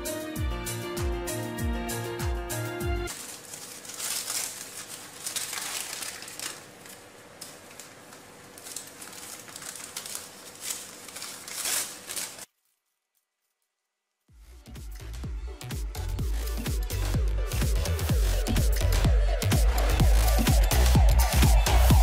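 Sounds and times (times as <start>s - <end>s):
cardboard matchboxes rustling: 3.1s - 12.9s.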